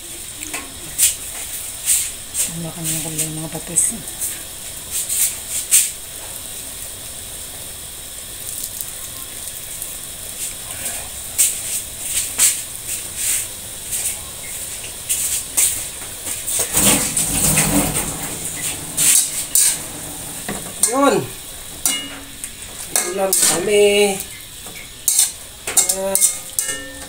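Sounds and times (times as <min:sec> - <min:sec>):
vegetables sizzling in a wok: 0:00.0 - 0:27.0
loud clatter: 0:16.6 - 0:20.9
utensil clicking against wok: 0:24.2 - 0:27.0.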